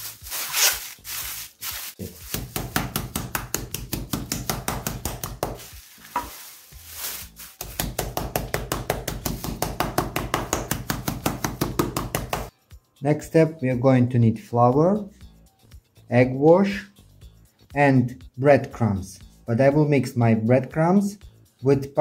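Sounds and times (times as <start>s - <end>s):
meat mallet pounding on board: 2.3s - 5.6s, 7.6s - 12.5s.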